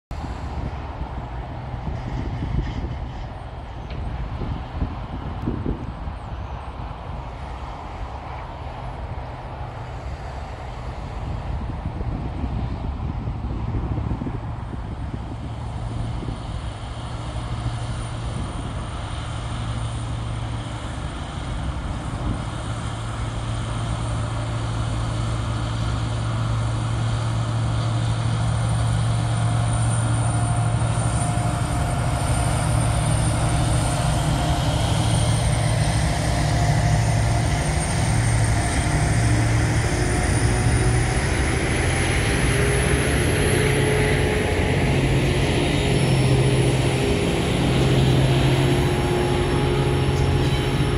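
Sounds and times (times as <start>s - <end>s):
locomotive engine drone: 0.1s - 50.9s
wagons rumbling past: 14.9s - 50.9s.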